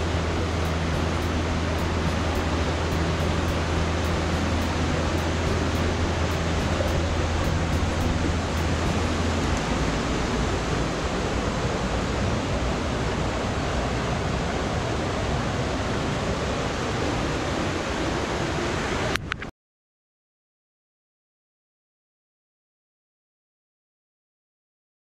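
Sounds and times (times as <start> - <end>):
river water rushing over rocks: 0.0 - 19.2.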